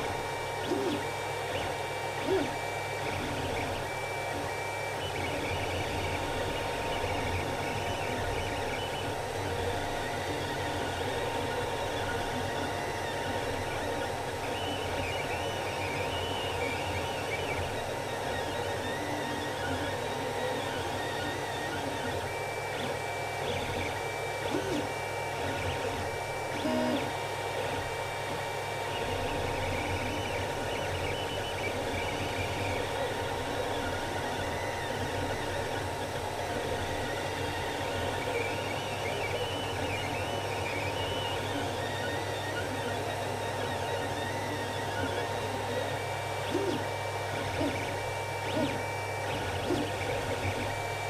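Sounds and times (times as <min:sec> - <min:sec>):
cooling fans whirring: 0:00.0 - 0:51.0
stepper motors whining: 0:00.0 - 0:51.0.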